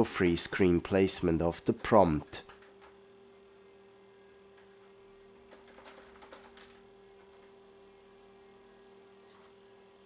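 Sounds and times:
steady hum: 0.0 - 10.0
faint keyboard typing: 4.5 - 7.6, 9.2 - 9.6.

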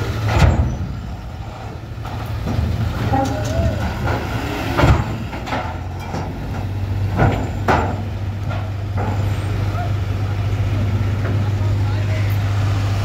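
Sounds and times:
metal ramp plates clanking: 0.0 - 9.9
truck diesel engine humming: 0.0 - 13.0.

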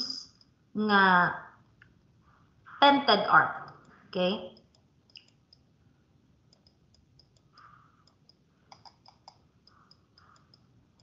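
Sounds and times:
faint clicks: 3.6 - 5.6, 6.5 - 11.0.

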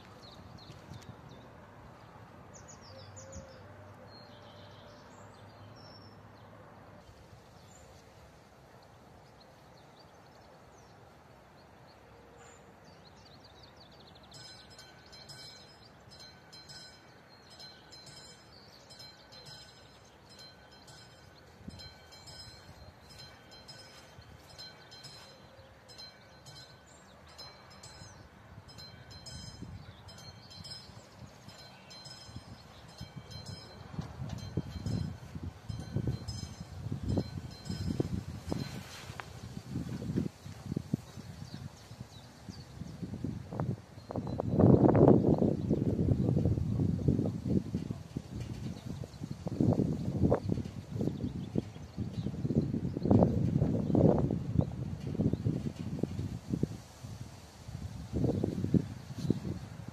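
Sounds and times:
level crossing bell ringing: 14.4 - 39.0.

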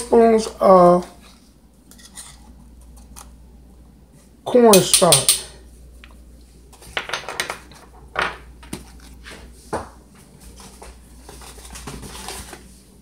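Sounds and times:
kitchen things knocking on wood: 7.0 - 8.4
box and bag rustling: 10.4 - 13.0.

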